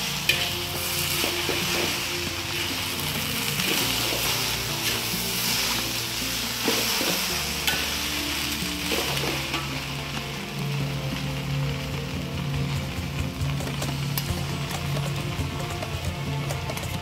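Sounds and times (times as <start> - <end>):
background music: 0.0 - 17.0
food sizzling in a pan: 0.0 - 17.0.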